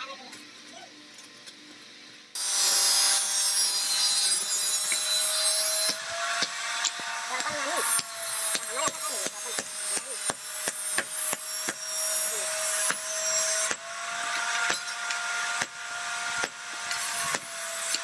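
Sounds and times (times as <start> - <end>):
hammer striking hot iron on anvil: 3.8 - 18.0.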